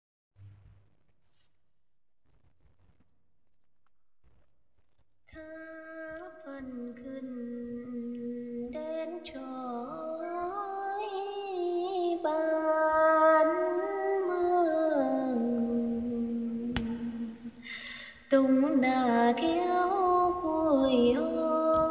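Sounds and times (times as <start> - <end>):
woman singing folk song: 18.3 - 21.9.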